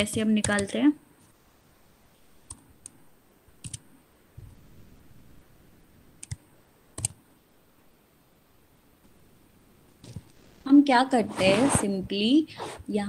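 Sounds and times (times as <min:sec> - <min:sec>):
keyboard typing clicks: 0:03.6 - 0:03.8, 0:06.2 - 0:06.4, 0:07.0 - 0:07.2.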